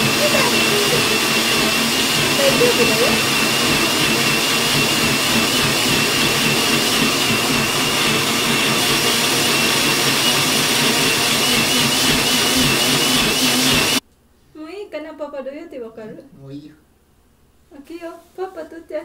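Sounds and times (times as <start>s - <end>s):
blender running: 0.0s - 14.0s.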